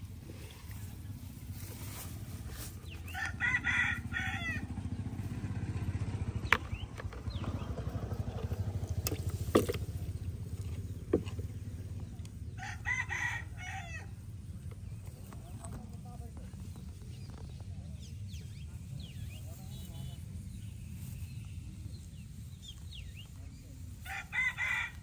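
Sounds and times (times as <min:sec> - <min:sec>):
rooster crowing: 0:03.1 - 0:04.8, 0:12.6 - 0:14.2, 0:24.0 - 0:25.0.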